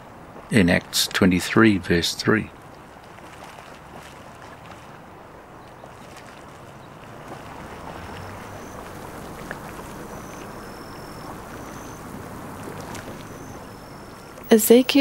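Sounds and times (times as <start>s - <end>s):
faint high thin peeps: 8.1s - 15.0s.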